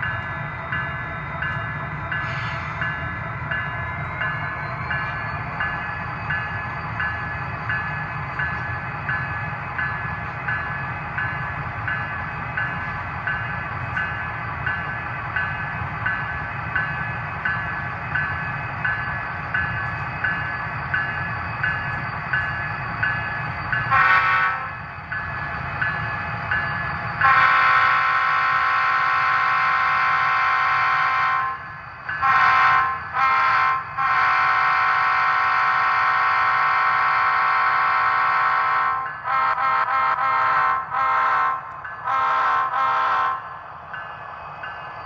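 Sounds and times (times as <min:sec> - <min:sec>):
model locomotive horn: 0:23.9 - 0:24.7, 0:27.2 - 0:31.6, 0:32.2 - 0:43.4.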